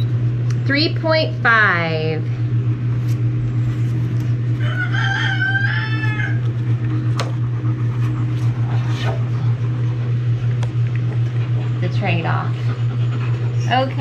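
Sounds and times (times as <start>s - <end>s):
steady low hum: 0.0s - 14.0s
rooster crowing: 4.5s - 6.7s.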